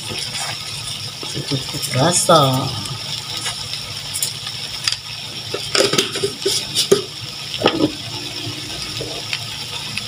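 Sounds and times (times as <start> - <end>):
spatula scraping metal wok: 0.0 - 1.4
meat sizzling: 0.0 - 10.0.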